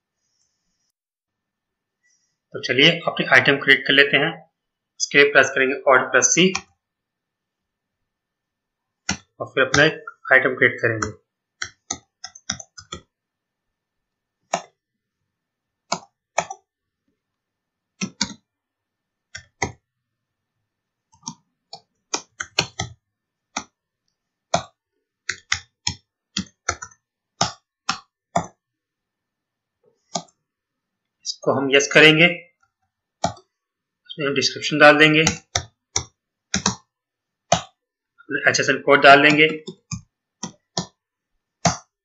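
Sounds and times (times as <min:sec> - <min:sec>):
computer keyboard typing: 0:09.0 - 0:09.9, 0:11.0 - 0:13.2, 0:14.4 - 0:14.8, 0:15.8 - 0:16.7, 0:18.0 - 0:18.5, 0:19.3 - 0:19.8, 0:21.1 - 0:23.8, 0:24.5 - 0:28.6, 0:30.0 - 0:30.4, 0:35.0 - 0:37.8, 0:39.3 - 0:41.0, 0:41.6 - 0:42.0.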